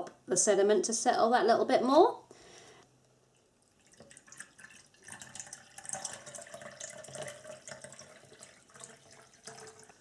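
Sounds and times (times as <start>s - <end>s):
water pouring into plastic bottle: 3.6s - 10.0s.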